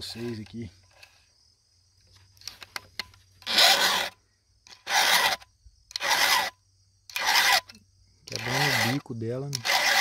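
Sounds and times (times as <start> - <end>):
file rasping on chainsaw chain: 3.4 - 10.0.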